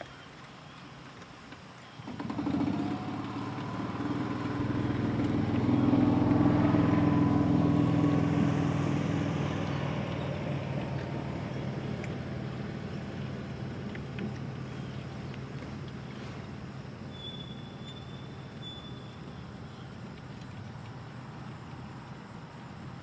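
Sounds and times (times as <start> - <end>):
vehicle engine running: 2.1 - 18.5.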